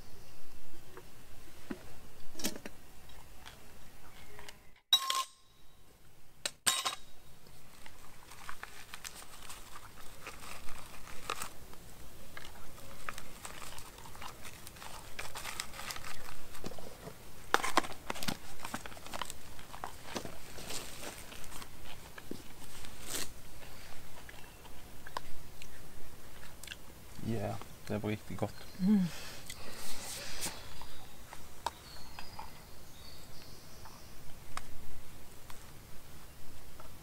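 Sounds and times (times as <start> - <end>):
spoons clinking on metal mugs: 4.9 - 5.5, 6.7 - 7.1
food packaging crinkling: 7.4 - 23.4.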